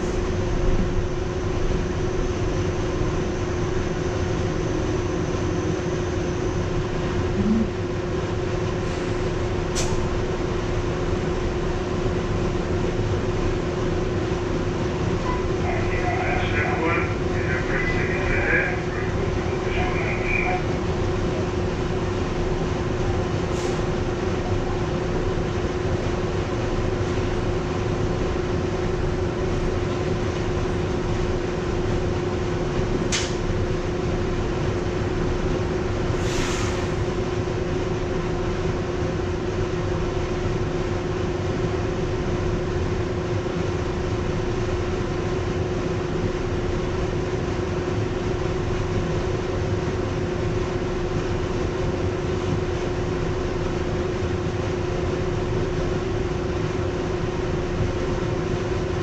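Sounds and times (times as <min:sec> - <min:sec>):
steady train hum: 0:00.0 - 0:59.0
subway wheels rumbling on rail: 0:00.0 - 0:59.0
short high hisses: 0:36.2 - 0:37.0.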